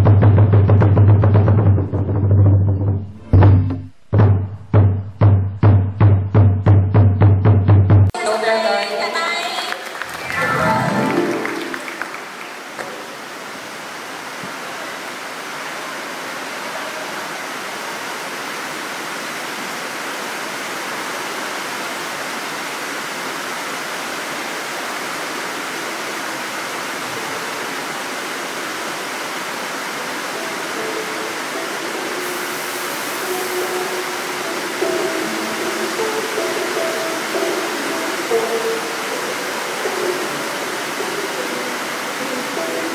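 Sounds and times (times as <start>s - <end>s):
rushing hall noise: 8.1s - 13.8s, 27.8s - 42.9s
fog machine hissing: 29.4s - 42.9s.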